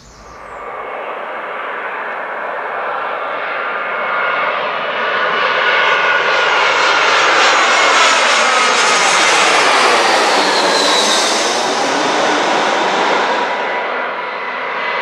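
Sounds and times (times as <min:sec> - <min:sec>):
jet airliner passing overhead: 0:00.0 - 0:15.0.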